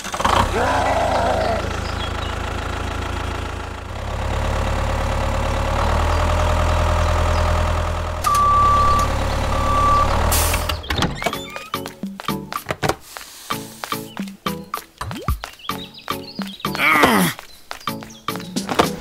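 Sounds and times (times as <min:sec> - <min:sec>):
tractor engine running: 0:00.0 - 0:11.3
high beeps: 0:08.2 - 0:10.3
short hiss: 0:13.0 - 0:14.0.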